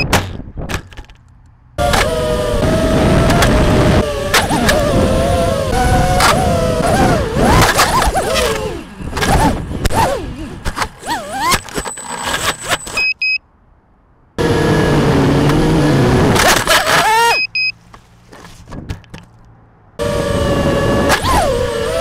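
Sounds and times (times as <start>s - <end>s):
drone motors whining: 1.8s - 13.1s, 14.4s - 17.7s, 20.0s - 22.0s
short beeps: 11.8s - 13.5s, 17.3s - 17.8s.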